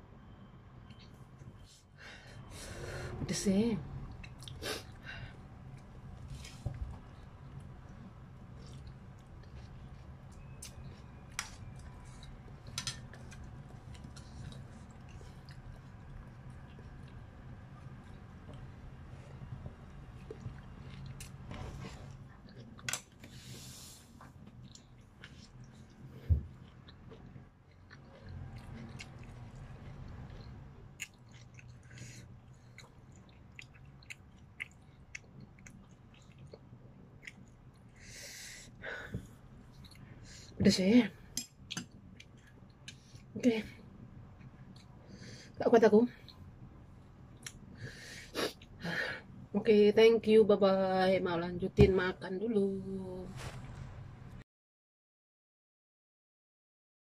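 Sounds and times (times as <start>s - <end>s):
chewing noodles with wet clicks: 4.0s - 5.0s, 5.7s - 21.4s, 24.2s - 38.0s, 39.6s - 40.0s, 41.3s - 43.3s, 47.3s - 47.7s.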